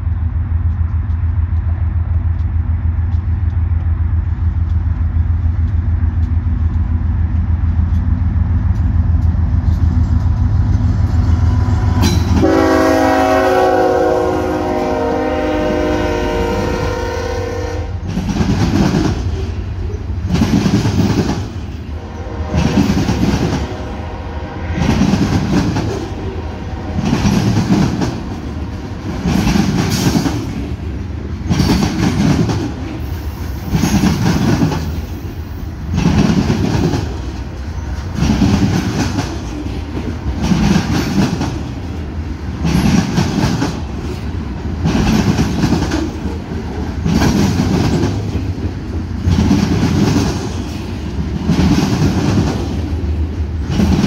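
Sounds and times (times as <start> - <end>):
train wheels clacking: 0.0 - 13.2, 18.0 - 24.0, 24.6 - 54.0
diesel locomotive rumble: 0.0 - 54.0
train horn blast: 11.4 - 18.1, 21.9 - 27.6.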